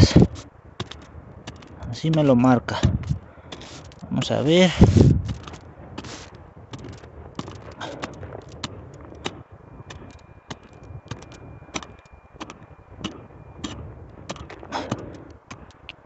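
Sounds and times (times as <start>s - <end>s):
hand pick chopping into soil: 4.8s - 15.7s.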